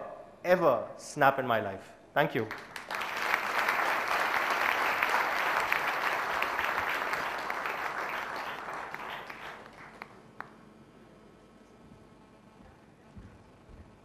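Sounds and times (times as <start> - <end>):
audience applauding: 2.5 - 10.6
single clap: 2.5 - 10.6.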